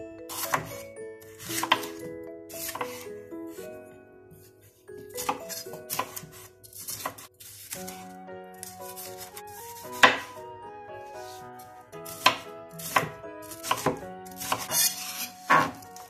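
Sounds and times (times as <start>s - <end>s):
background music: 0.0s - 16.0s
knife chopping on cutting board: 0.3s - 0.8s, 1.4s - 2.0s, 2.6s - 3.0s, 5.2s - 8.0s, 8.9s - 10.3s, 12.1s - 15.8s.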